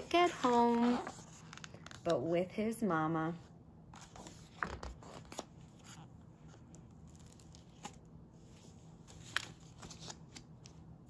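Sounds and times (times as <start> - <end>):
page rustles: 4.0 - 10.8.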